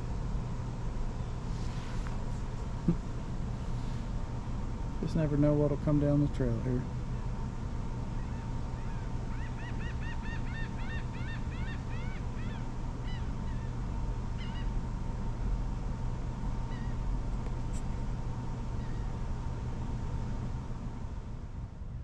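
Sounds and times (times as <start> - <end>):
steady low hum: 0.0 - 22.0
bird calling: 8.1 - 14.8, 16.6 - 17.1, 18.6 - 19.2.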